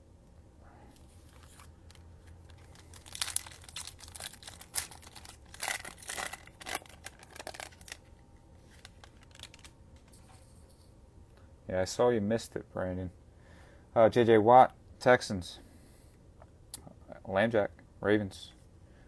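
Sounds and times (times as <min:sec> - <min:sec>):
wrapper tearing and crackling: 0:01.3 - 0:08.1, 0:08.7 - 0:09.7.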